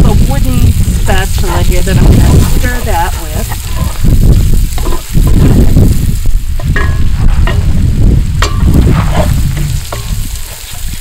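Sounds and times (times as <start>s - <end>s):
steady low rumble: 0.0s - 10.5s
onions sizzling in a pot: 0.0s - 11.0s
spoon knocking and scraping pot: 4.8s - 5.4s, 6.6s - 7.8s.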